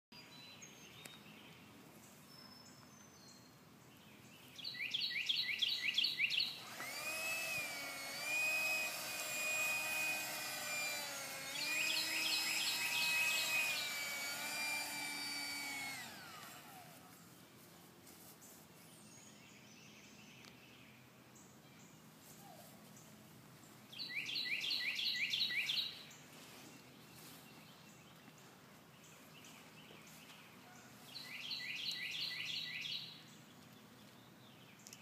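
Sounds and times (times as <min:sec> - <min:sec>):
electronic whirr wavering in pitch: 0:06.5 - 0:17.2
toy gun zaps: 0:06.7 - 0:16.8.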